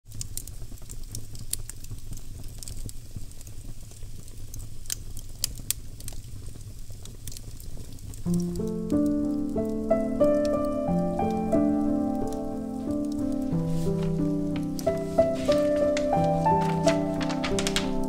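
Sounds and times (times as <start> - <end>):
wood fire crackling: 0.1 - 18.0
instrumental piano music: 8.2 - 18.0.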